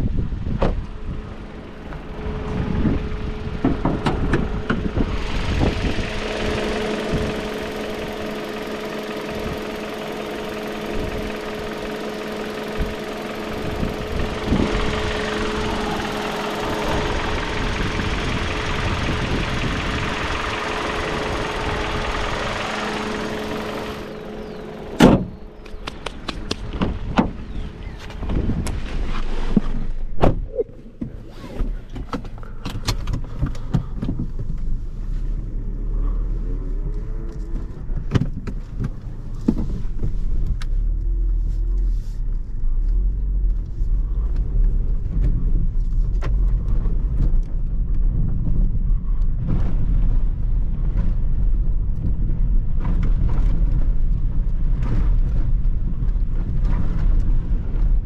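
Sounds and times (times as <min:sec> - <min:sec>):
constant whine: 0:00.0 - 0:58.0
low rumble: 0:00.0 - 0:58.0
car engine idling: 0:00.8 - 0:28.6.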